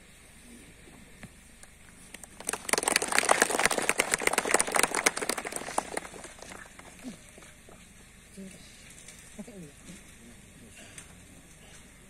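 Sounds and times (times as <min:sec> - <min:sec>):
small audience applause: 0:02.1 - 0:07.4.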